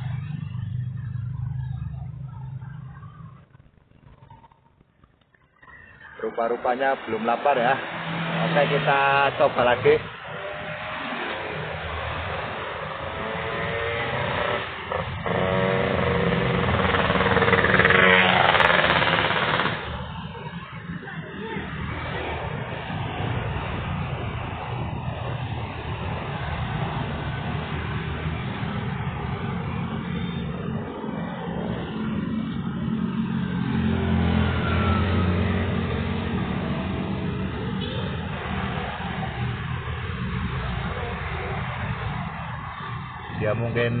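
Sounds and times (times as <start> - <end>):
vehicle engine passing by: 6.7 - 20.2, 21.6 - 42.0.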